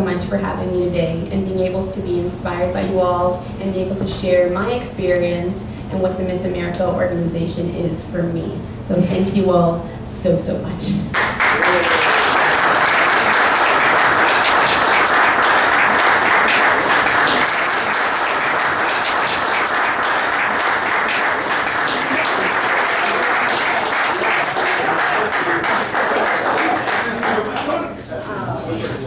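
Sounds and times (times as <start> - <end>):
audience applauding: 11.2 - 28.0.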